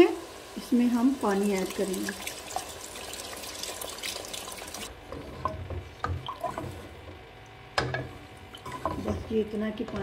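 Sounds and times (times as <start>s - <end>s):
water pouring into a pot: 0.2s - 4.9s.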